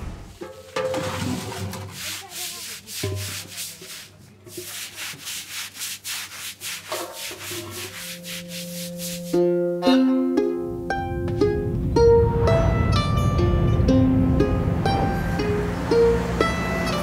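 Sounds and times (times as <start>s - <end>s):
rhythmic scraping strokes: 0.3s - 9.8s
sustained low notes: 9.8s - 17.0s.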